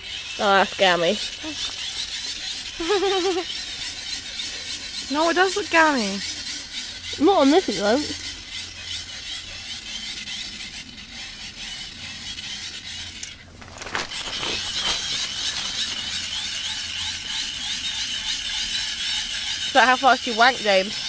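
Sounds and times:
hand-cranked torch gears whirring: 0:00.0 - 0:21.0.

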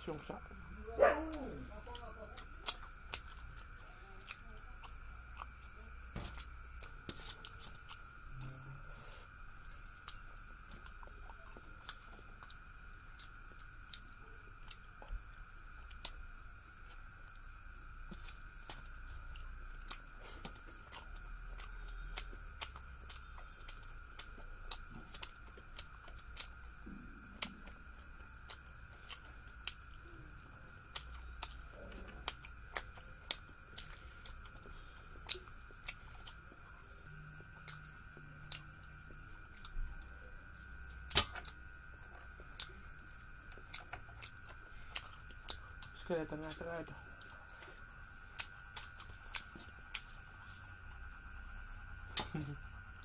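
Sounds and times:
faint high whine: 0:00.0 - 0:53.0.

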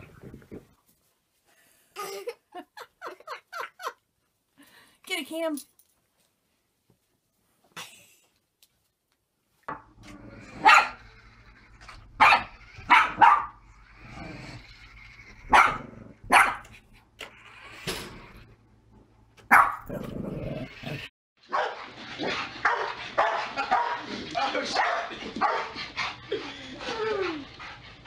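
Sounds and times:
dog barking: 0:10.6 - 0:11.0, 0:12.2 - 0:13.6, 0:15.5 - 0:16.7, 0:19.5 - 0:20.0, 0:21.5 - 0:21.8, 0:22.6 - 0:24.0, 0:24.7 - 0:25.8.

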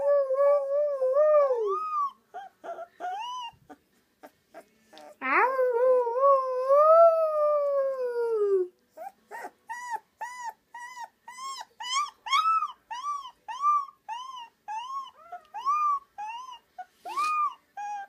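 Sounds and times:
boy howling: 0:00.0 - 0:01.8
puppy yipping howl: 0:00.0 - 0:03.6, 0:05.0 - 0:18.0.

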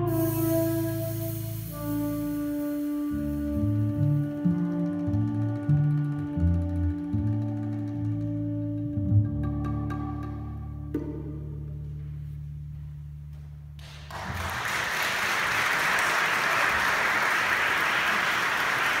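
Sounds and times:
audience applause: 0:13.8 - 0:19.0.

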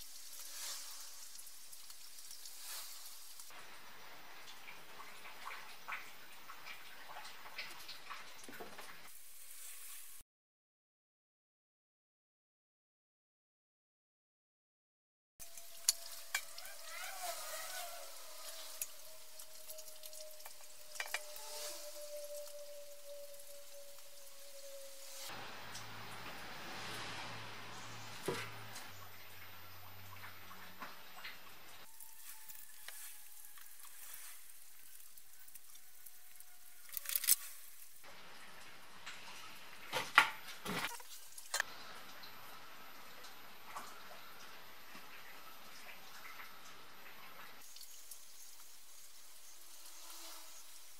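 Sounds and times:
faint steady tone: 0:15.4 - 0:34.3, 0:41.6 - 0:50.6
tape crackling as peeled: 0:31.9 - 0:38.0.

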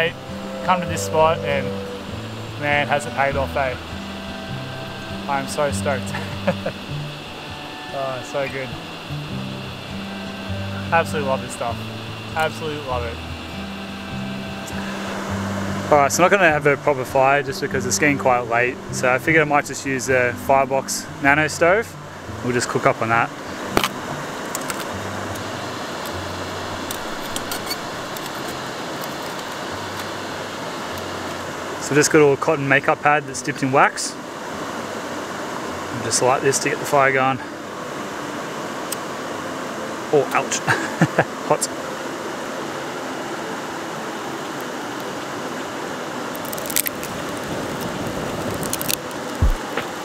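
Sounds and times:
steady background rush: 0:00.0 - 0:50.0
twigs snapping: 0:23.8 - 0:26.1, 0:46.3 - 0:50.0
twigs crackling in stove: 0:46.3 - 0:49.9.

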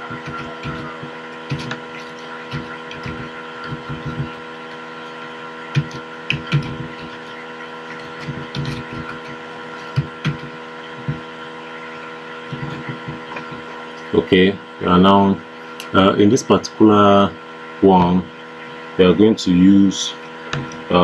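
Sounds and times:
keyboard typing: 0:00.0 - 0:11.3
electrical hum: 0:00.0 - 0:21.0.

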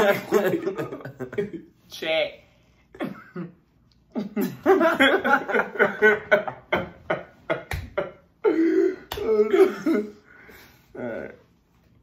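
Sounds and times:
young men laughing: 0:00.0 - 0:01.8, 0:03.0 - 0:10.2.

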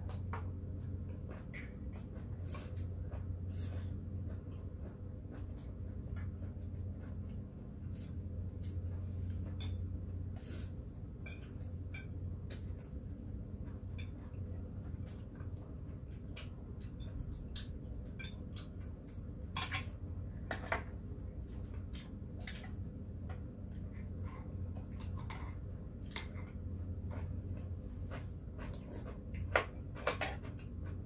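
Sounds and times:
cutlery clinking on dishes: 0:01.4 - 0:02.1, 0:11.2 - 0:12.2, 0:19.5 - 0:20.8.

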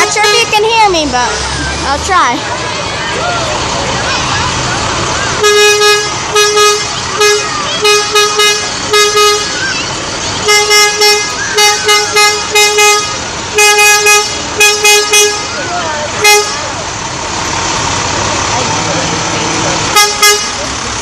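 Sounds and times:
truck horn toots: 0:00.0 - 0:00.7, 0:05.3 - 0:16.9, 0:19.4 - 0:20.8.

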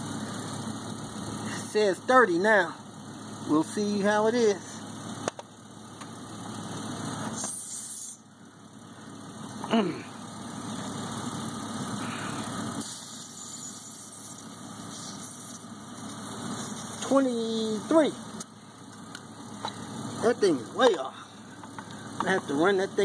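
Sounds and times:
steady low hum: 0:00.0 - 0:23.0
air hissing from tire valve: 0:07.1 - 0:08.3, 0:11.8 - 0:17.0.

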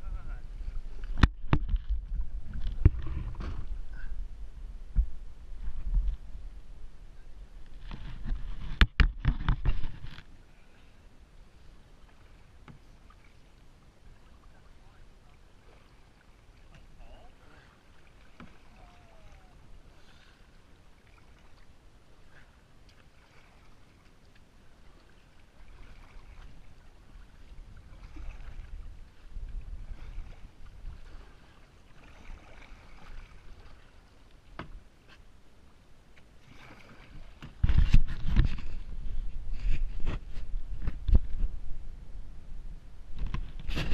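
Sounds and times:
low rumble: 0:00.0 - 0:07.8
paddle splashing water: 0:07.6 - 0:41.5.

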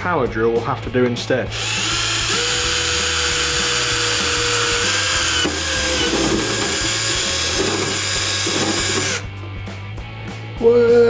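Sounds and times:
power drill boring into plastic: 0:01.5 - 0:09.2.

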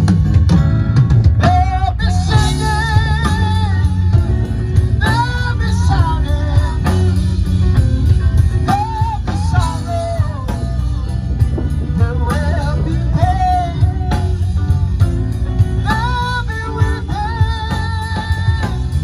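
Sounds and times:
bass guitar: 0:00.0 - 0:19.0
drum kit beat: 0:00.0 - 0:19.0
electric guitars: 0:00.0 - 0:19.0.

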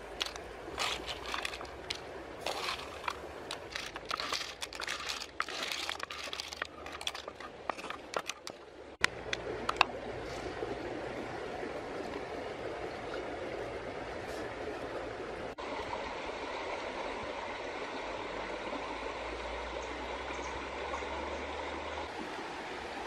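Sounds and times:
leaves crinkling: 0:00.0 - 0:08.6
shells clicking and clattering: 0:00.2 - 0:08.6.

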